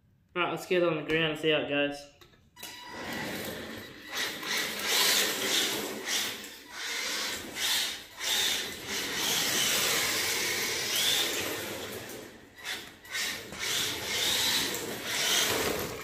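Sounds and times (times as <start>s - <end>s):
electric motor whirring: 2.9s - 16.0s
plastic tyres scrubbing on concrete: 3.0s - 16.0s.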